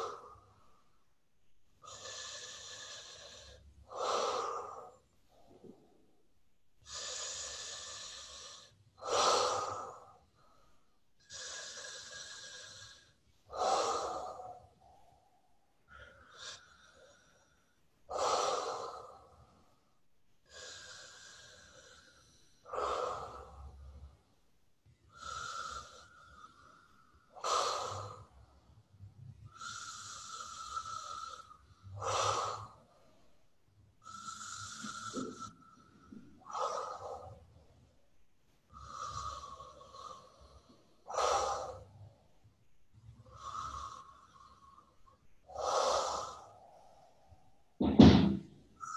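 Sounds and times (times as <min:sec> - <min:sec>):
woman breathing hard through nose: 0:00.0 - 0:01.2, 0:01.8 - 0:47.8, 0:48.6 - 0:48.9
faint whistle on breaths: 0:25.1 - 0:37.9, 0:38.7 - 0:42.5, 0:48.7 - 0:48.9.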